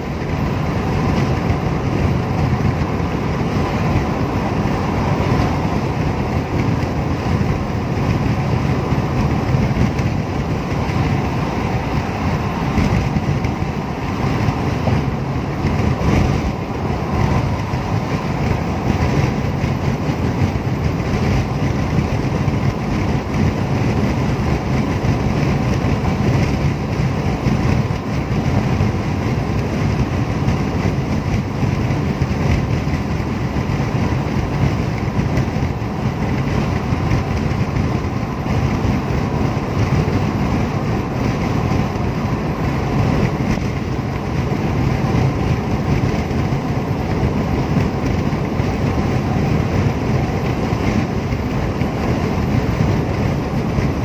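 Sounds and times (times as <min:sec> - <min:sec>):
road noise inside a car: 0:00.0 - 0:54.0.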